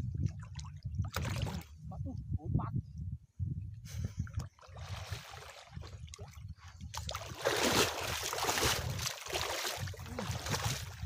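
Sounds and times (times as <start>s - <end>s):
water sloshing and splashing: 0.0s - 1.7s, 4.4s - 11.0s.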